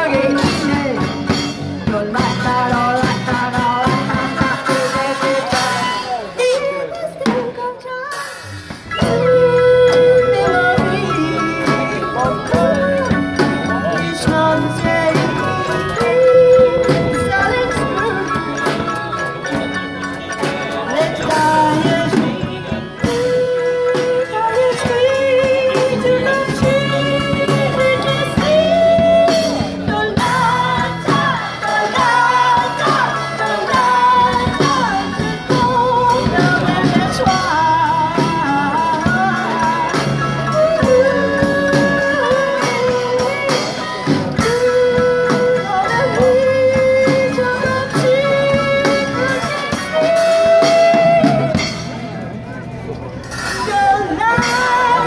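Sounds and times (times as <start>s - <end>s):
woman singing: 0.0s - 18.9s, 20.7s - 51.7s, 53.6s - 55.0s
banjo and guitar: 0.0s - 55.0s
drum kit: 0.0s - 55.0s
people singing along: 20.7s - 51.1s.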